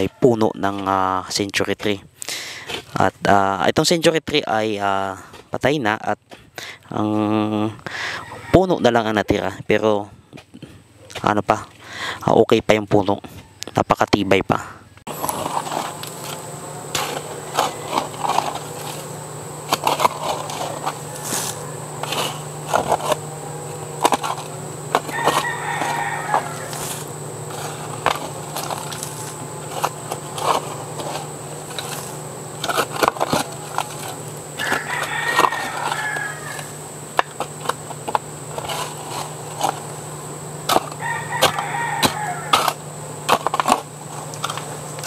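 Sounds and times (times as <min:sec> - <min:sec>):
hand tool scraping into soil: 0:02.5 - 0:03.1, 0:15.1 - 0:40.0, 0:40.6 - 0:45.0
rooster crowing: 0:07.9 - 0:08.8, 0:15.1 - 0:37.5, 0:40.7 - 0:43.0
low hum: 0:14.8 - 0:45.0.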